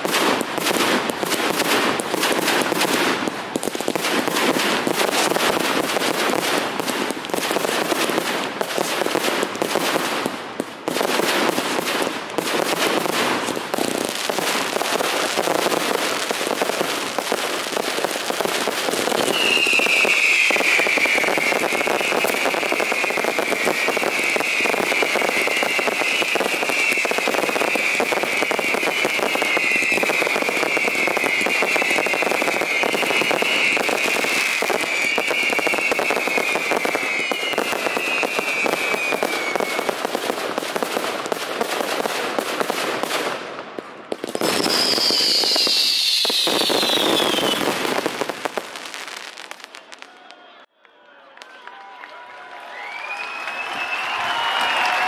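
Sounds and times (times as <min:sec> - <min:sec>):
fireworks crackling and banging: 0:00.0 - 0:50.4, 0:52.7 - 0:55.0
shrill whistling firework: 0:11.2 - 0:40.4, 0:44.2 - 0:50.7, 0:52.6 - 0:55.0.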